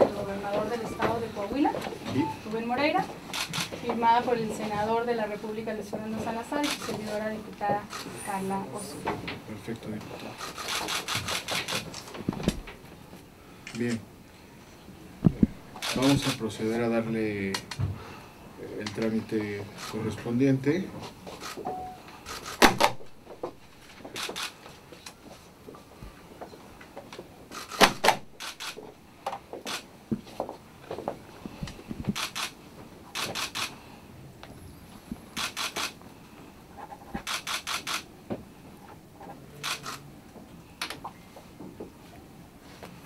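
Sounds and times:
quick sharp clicks: 10.4 - 12.0, 22.3 - 23.0, 27.5 - 28.8, 32.1 - 32.6, 33.2 - 33.8, 35.4 - 36.0, 37.2 - 38.1, 39.6 - 40.0.

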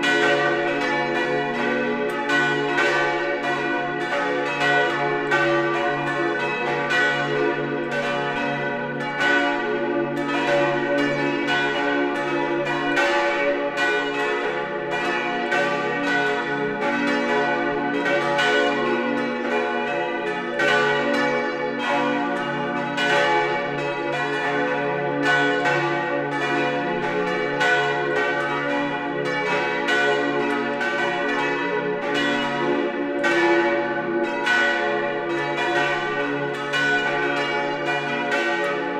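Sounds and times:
church bells pealing: 0.0 - 38.9.

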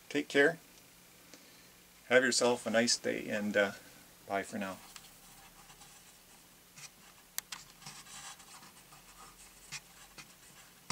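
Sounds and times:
light scratching and rustling: 4.6 - 10.9.

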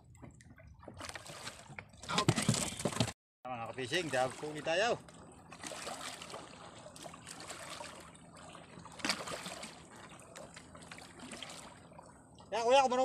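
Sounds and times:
water lapping against hull: 0.0 - 13.0
knocks on boat: 1.8 - 3.2.

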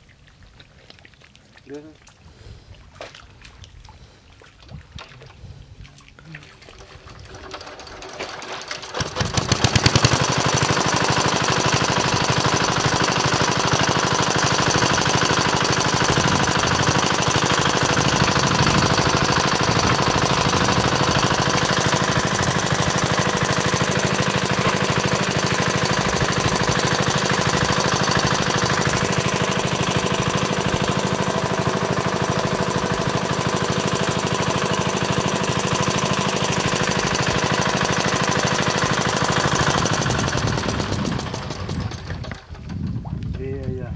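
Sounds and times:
small engine running with knocking: 6.8 - 43.0.

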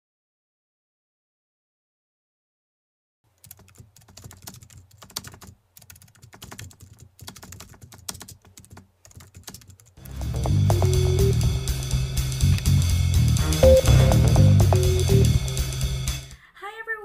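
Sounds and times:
music with guitar and drums: 10.1 - 16.4.

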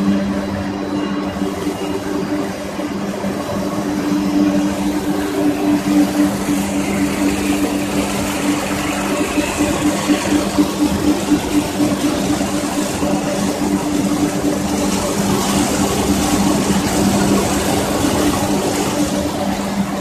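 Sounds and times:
conveyor and pellets clattering: 0.0 - 20.0.

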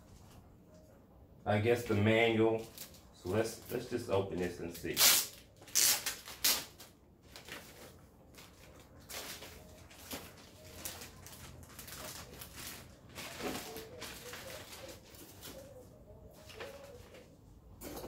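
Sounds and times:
paper and plastic packaging rustling: 1.6 - 17.5.

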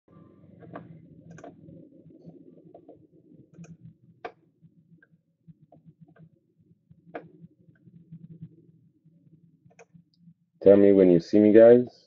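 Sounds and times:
low room hum: 0.1 - 12.0
computer mouse clicking: 0.6 - 4.4, 5.0 - 6.3, 9.7 - 10.2.

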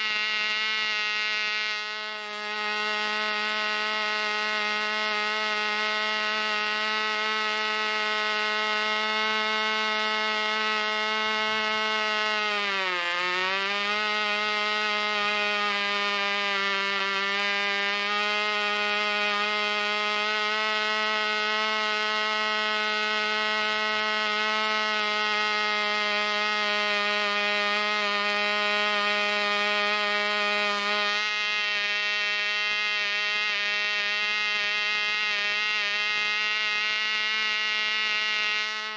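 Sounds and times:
model engine high-pitched buzz: 0.0 - 38.9.

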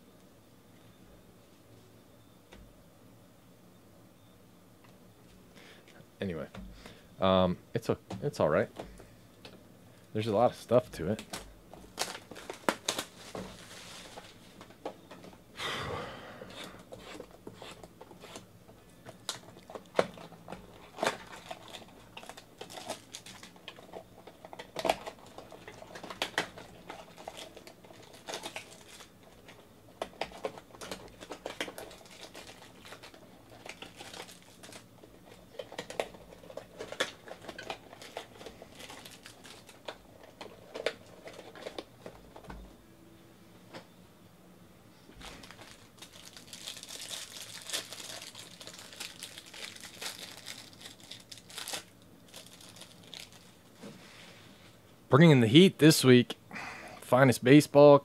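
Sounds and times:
plastic and paper wrapping crinkling: 10.6 - 14.9, 19.2 - 42.4, 45.1 - 54.0
wrapping tearing: 11.1 - 14.4, 19.2 - 41.9, 45.2 - 53.7.

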